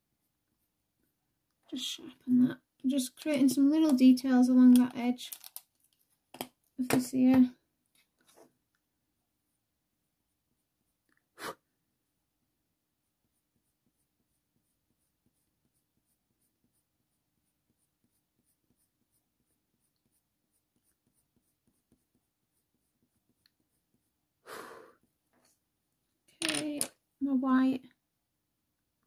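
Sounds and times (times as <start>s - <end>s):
pencil scratching on paper: 10.4s - 11.0s, 12.9s - 24.4s, 25.0s - 25.6s.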